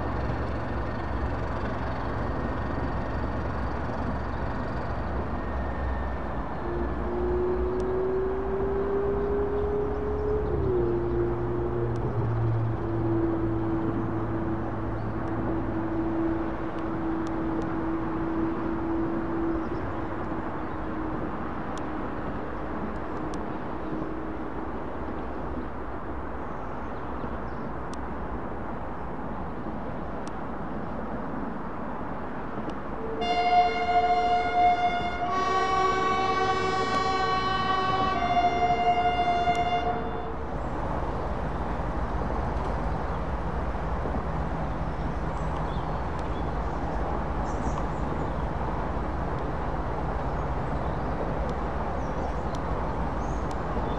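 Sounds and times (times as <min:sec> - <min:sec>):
engine drone: 0:00.0 - 0:24.6
moving train rumble: 0:00.0 - 0:53.9
locomotive horn: 0:06.0 - 0:07.8, 0:33.0 - 0:40.6.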